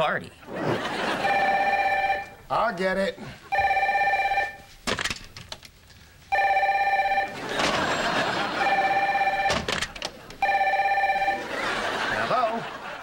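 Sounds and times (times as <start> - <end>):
desk telephone ringing: 1.0 - 2.4, 3.5 - 4.7, 6.3 - 12.1.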